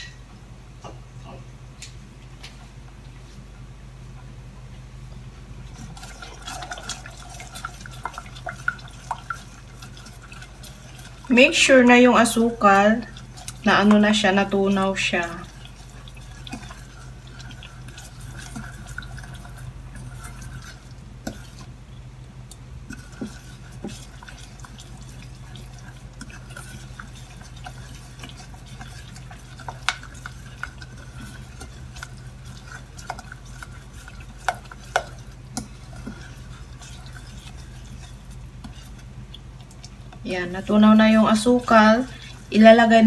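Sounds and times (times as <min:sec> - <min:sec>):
wooden spoon scraping saucepan: 0:05.7 - 0:21.8, 0:22.8 - 0:39.3.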